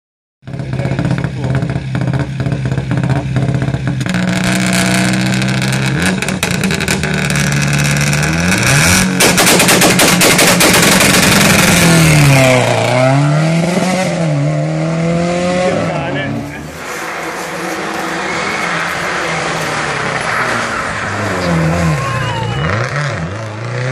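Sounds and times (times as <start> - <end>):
exhaust pops and bangs: 0.4 - 12.8
rally car engine revving: 0.4 - 23.9.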